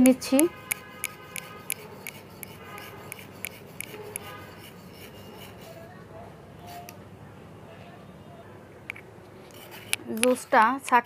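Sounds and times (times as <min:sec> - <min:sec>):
spoon scraping metal strainer: 0:00.0 - 0:05.9.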